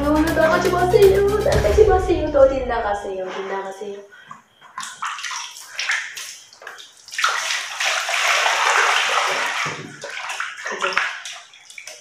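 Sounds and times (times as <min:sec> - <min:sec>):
water splashing in a basin: 0:04.2 - 0:12.0
water pouring from a jug: 0:04.7 - 0:12.0.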